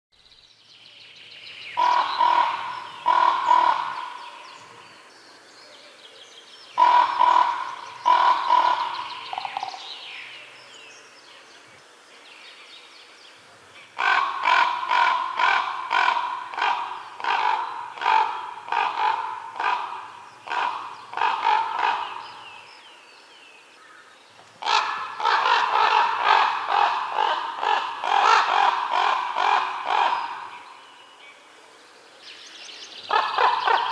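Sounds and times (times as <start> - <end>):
crow cawing: 1.8 - 4.3, 6.8 - 9.8, 14.0 - 22.3, 24.6 - 30.5.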